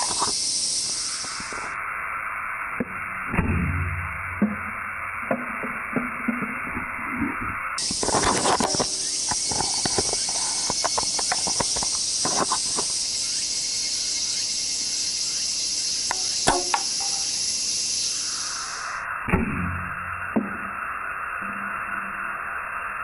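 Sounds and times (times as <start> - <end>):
steady hiss: 0.0 - 23.0
crossbow snap: 16.1 - 17.4.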